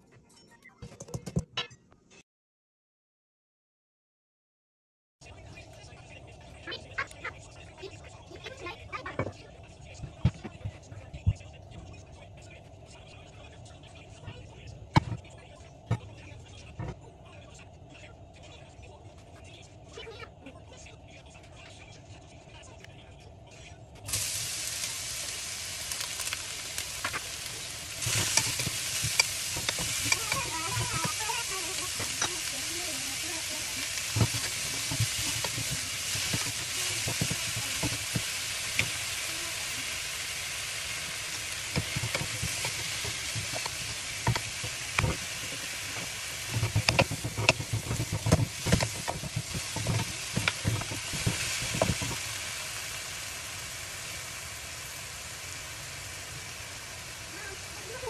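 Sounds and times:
vegetables sizzling in hot oil: 0:24.1 - 0:58.0
spatulas scraping and knocking pan: 0:25.8 - 0:39.8, 0:41.2 - 0:52.4.

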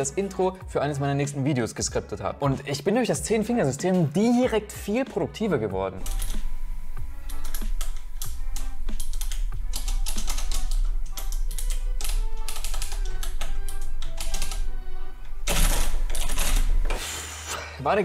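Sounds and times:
background music with bass line: 0:00.0 - 0:17.0
typing on computer keyboard: 0:06.0 - 0:06.4, 0:07.3 - 0:14.7, 0:15.4 - 0:16.7.

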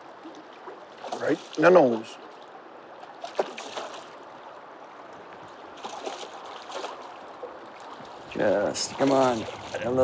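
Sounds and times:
fish thrashing and splashing: 0:03.1 - 0:04.2, 0:05.8 - 0:08.0.

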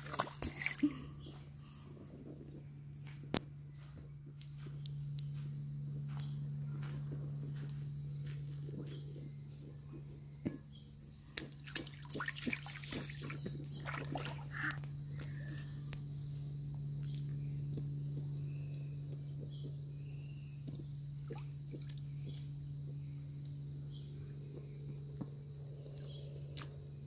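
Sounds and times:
water splashing and sloshing: 0:00.0 - 0:01.2, 0:11.4 - 0:14.9, 0:21.3 - 0:22.0.

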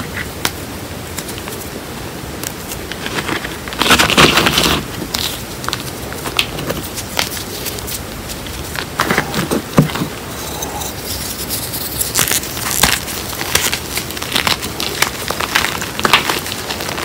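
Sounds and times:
chalk lumps crackling: 0:10.2 - 0:17.0
hands crunching chalk powder: 0:10.4 - 0:17.0.

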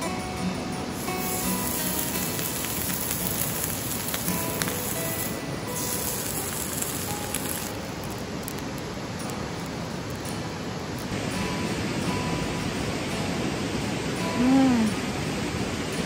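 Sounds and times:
soft background music: 0:00.0 - 0:16.0
meat sizzling on a griddle: 0:01.0 - 0:10.4.

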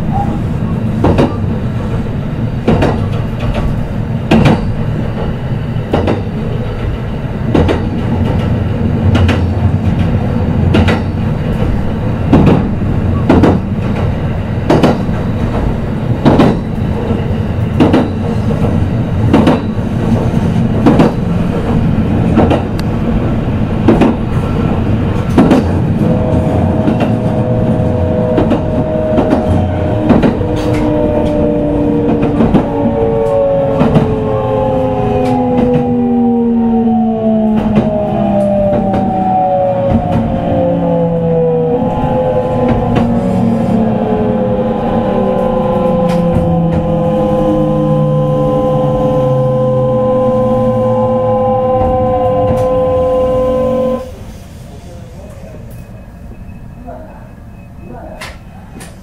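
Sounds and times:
train running rumble: 0:00.0 - 0:59.0
train wheels clacking over rail joints: 0:01.0 - 0:23.0, 0:23.8 - 0:34.3
traction motor whine: 0:26.0 - 0:54.1.

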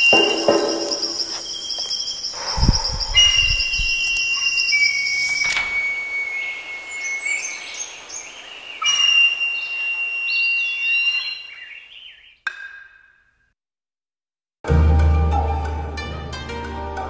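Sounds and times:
birds whistling and chirping: 0:00.0 - 0:12.5.

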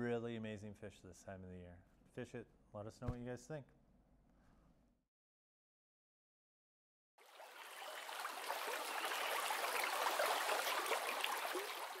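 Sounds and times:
rushing babbling stream: 0:07.2 - 0:12.0.

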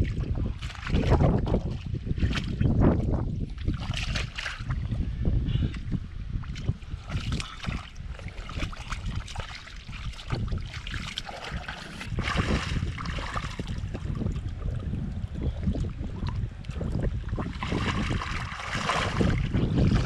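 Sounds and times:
wind on microphone: 0:00.0 - 0:20.0
hands squelching through mud: 0:03.5 - 0:04.8, 0:06.5 - 0:14.6, 0:16.0 - 0:20.0.

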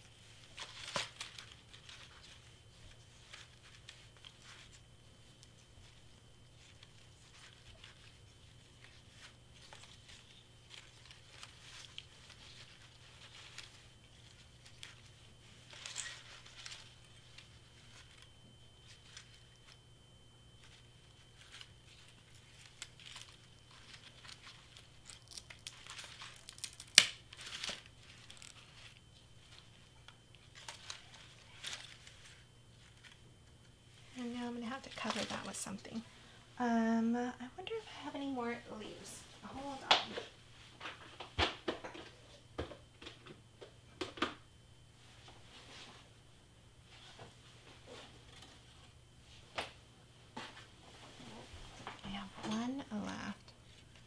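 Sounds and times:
paper and ribbon rustling: 0:00.0 - 0:36.1.

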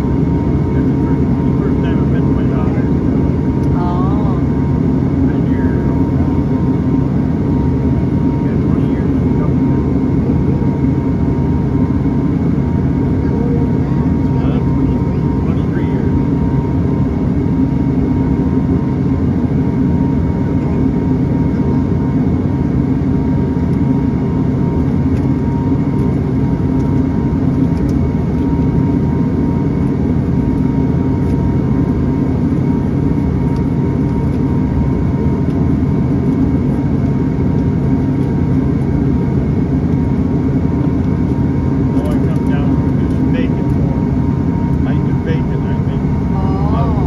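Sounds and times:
turboprop engine drone from cabin: 0:00.0 - 0:47.0.

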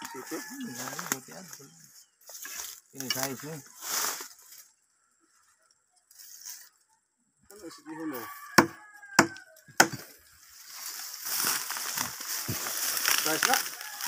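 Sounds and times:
rooster crowing: 0:00.0 - 0:01.6, 0:07.5 - 0:09.9, 0:13.4 - 0:14.0
machete chopping wood: 0:08.6 - 0:10.1.

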